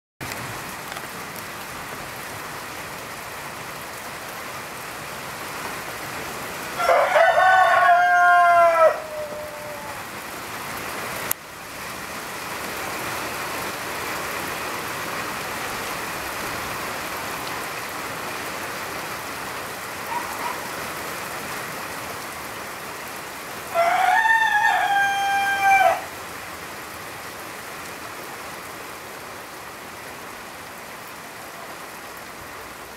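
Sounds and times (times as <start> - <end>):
light rain falling: 0.2 - 32.9
rooster crowing: 6.8 - 10.2, 23.7 - 26.2.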